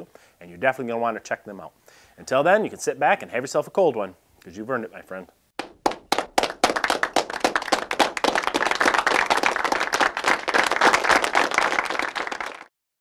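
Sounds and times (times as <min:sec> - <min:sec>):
applause: 0:05.6 - 0:12.7.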